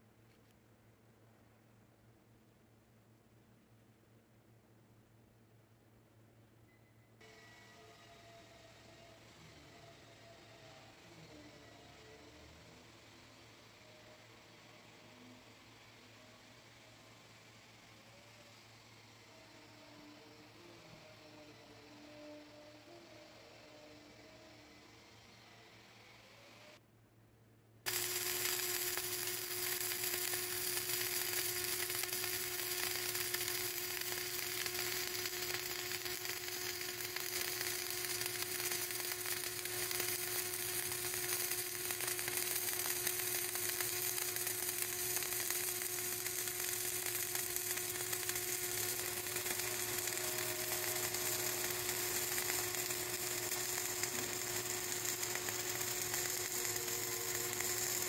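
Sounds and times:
steady hum: 0:27.7 - 0:58.0
welding arc crackling: 0:27.9 - 0:58.0.

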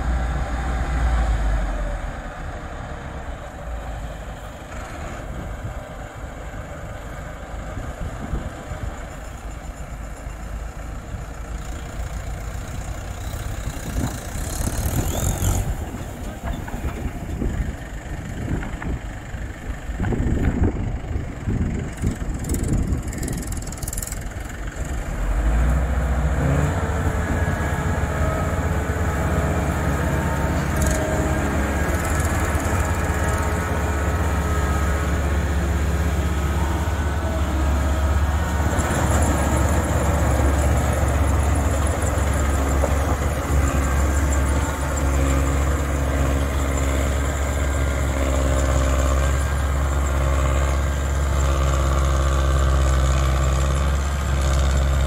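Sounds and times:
deep engine hum: 0:00.0 - 0:55.0
machinery whir: 0:21.7 - 0:52.9.

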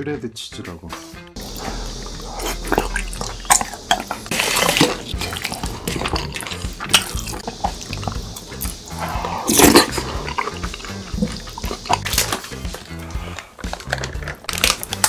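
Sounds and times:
ladle stirring thick sauce: 0:01.4 - 0:13.3
chewing: 0:01.4 - 0:15.0.

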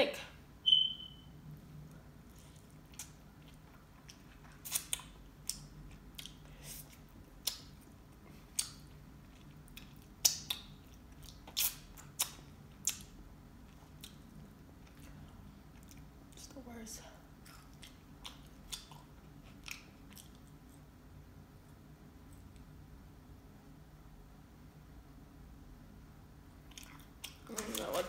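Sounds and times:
person chewing food: 0:02.2 - 0:16.4, 0:17.3 - 0:20.9, 0:26.6 - 0:28.0.

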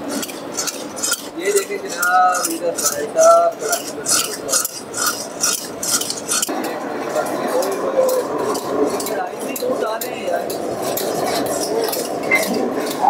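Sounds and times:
short metallic rings: 0:00.0 - 0:06.5
metal ladle scraping a wok: 0:00.0 - 0:06.6, 0:08.1 - 0:13.0.

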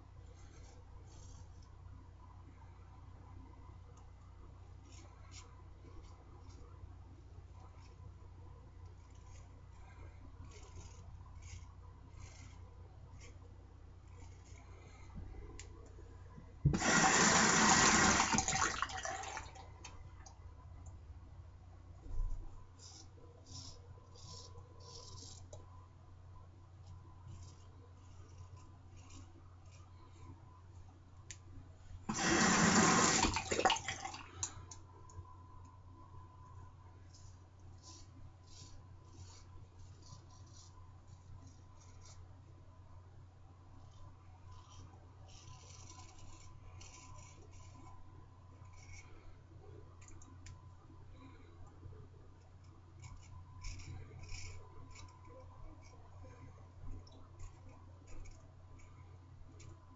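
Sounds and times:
tap water running into sink: 0:16.7 - 0:19.5, 0:32.1 - 0:34.2
razor scraping stubble: 0:44.6 - 0:48.0.

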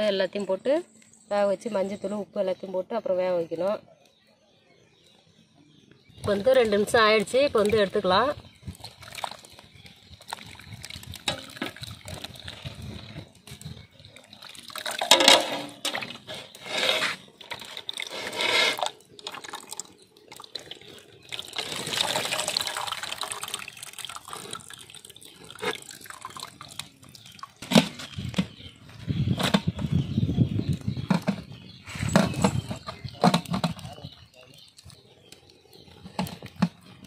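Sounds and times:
water pouring and dripping: 0:06.2 - 0:28.7, 0:32.0 - 0:37.0
water splashing in steel basin: 0:06.9 - 0:28.4.

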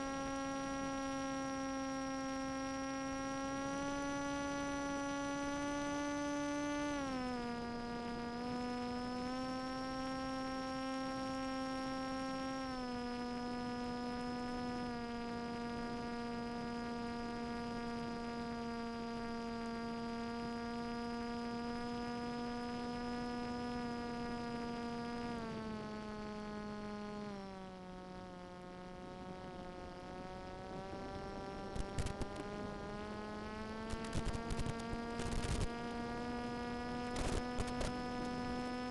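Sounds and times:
electric motor and propeller whine: 0:00.0 - 0:38.9
short crackles: 0:31.8 - 0:32.4, 0:33.8 - 0:35.7, 0:37.1 - 0:38.0.

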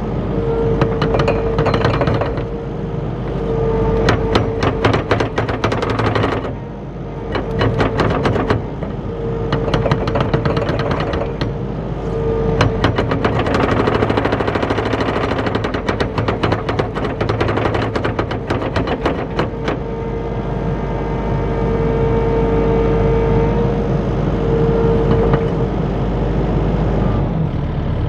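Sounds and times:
diesel engine running: 0:00.0 - 0:28.0
metallic track clanking and rattling: 0:00.3 - 0:20.2, 0:24.9 - 0:25.8.

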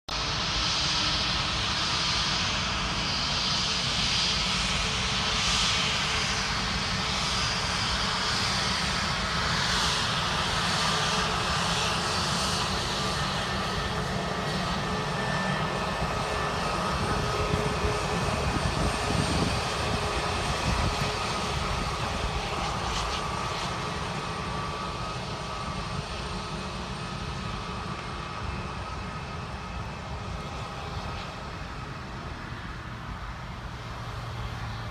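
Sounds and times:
jet engine roar: 0:00.1 - 0:34.9.

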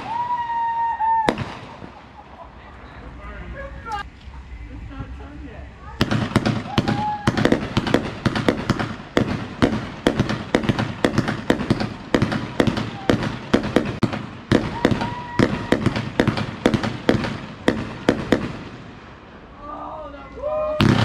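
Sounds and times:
fireworks popping and crackling: 0:00.0 - 0:02.2, 0:06.0 - 0:19.0, 0:20.8 - 0:21.0.

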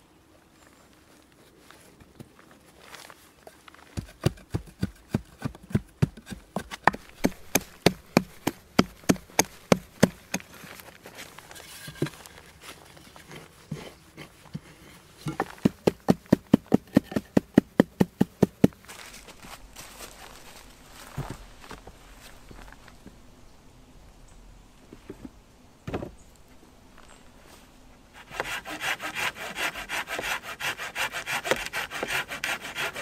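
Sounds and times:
mattock chopping into earth: 0:04.0 - 0:10.5.

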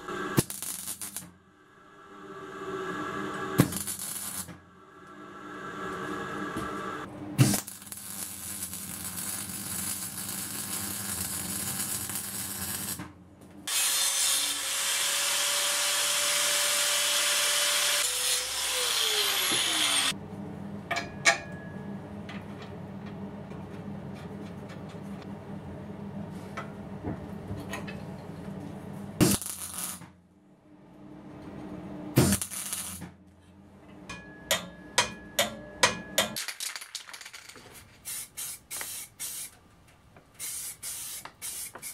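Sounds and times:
power tool cutting steel: 0:13.7 - 0:20.1.

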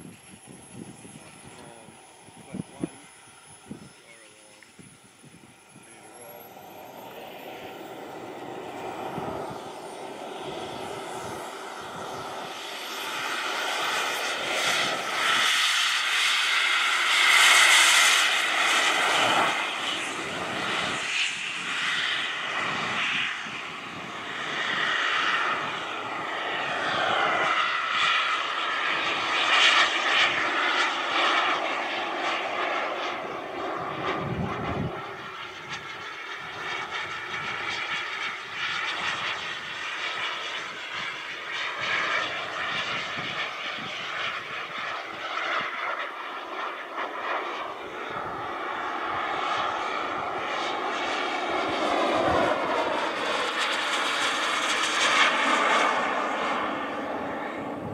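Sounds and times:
high turbine whine: 0:00.0 - 0:57.9
jet turbine engines roaring: 0:00.0 - 0:57.9.

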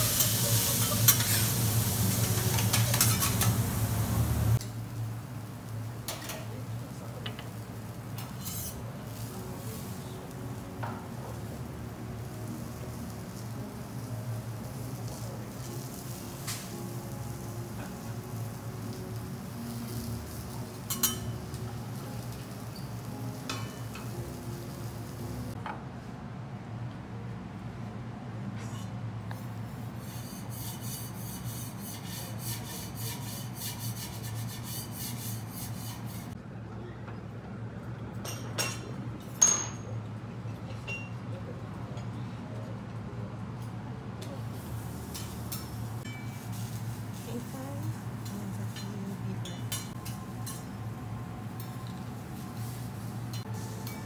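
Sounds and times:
metal spatula scraping griddle: 0:00.0 - 0:03.7, 0:08.2 - 0:08.8
metal spatulas scraping on griddle: 0:00.0 - 0:03.8, 0:08.2 - 0:08.8, 0:20.9 - 0:21.3, 0:29.9 - 0:36.4.

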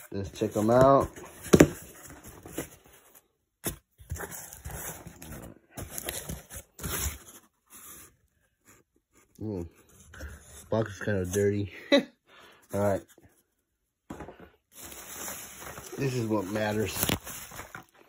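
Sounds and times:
cardboard and bubble wrap rustling: 0:00.0 - 0:09.1, 0:14.2 - 0:18.0.

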